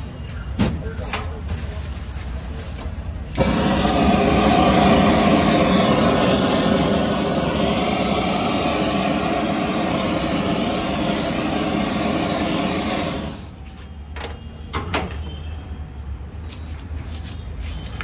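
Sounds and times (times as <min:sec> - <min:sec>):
gas torch flame roaring: 0:03.1 - 0:13.6.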